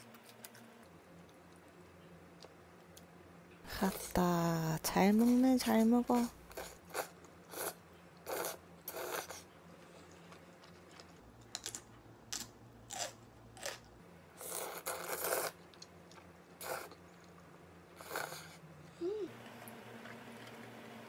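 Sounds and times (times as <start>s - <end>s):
noodles slurping: 6.5s - 9.4s, 14.4s - 17.0s, 18.0s - 18.6s
crunchy bites: 11.6s - 13.9s.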